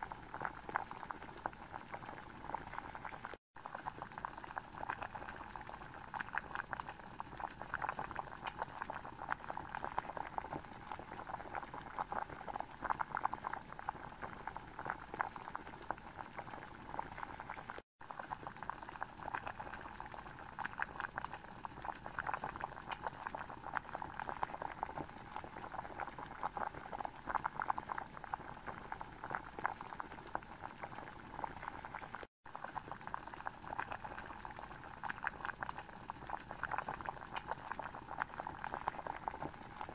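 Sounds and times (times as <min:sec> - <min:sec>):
curry sauce bubbling in a pan: 0:00.0 - 0:39.9.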